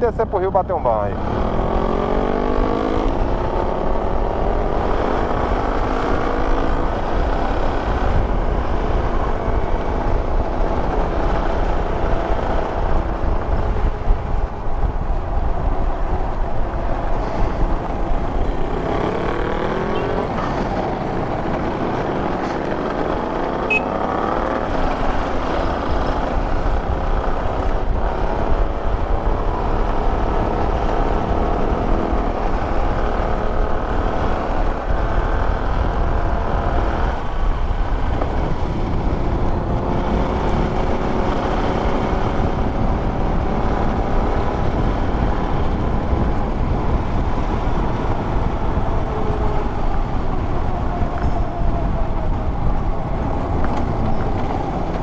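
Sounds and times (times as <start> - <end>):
motorcycle engine revving: 1.0 - 55.0
wind on microphone: 1.0 - 55.0.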